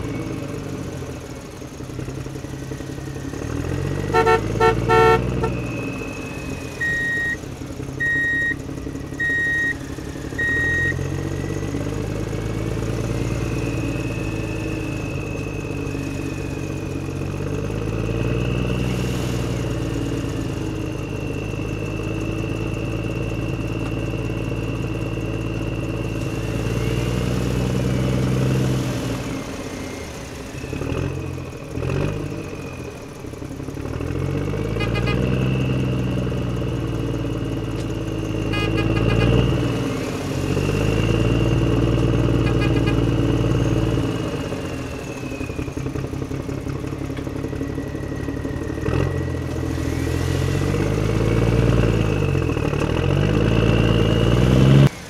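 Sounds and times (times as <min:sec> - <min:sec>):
engine revving: 0:00.0 - 0:55.0.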